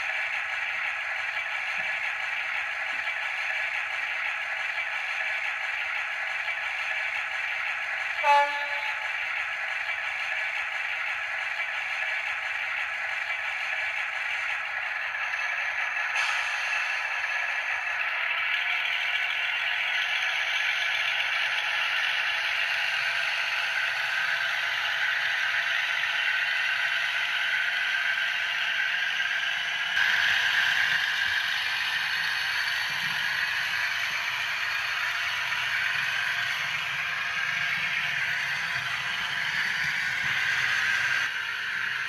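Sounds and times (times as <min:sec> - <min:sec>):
model train wheels rattling on rails: 0:00.0 - 0:42.0.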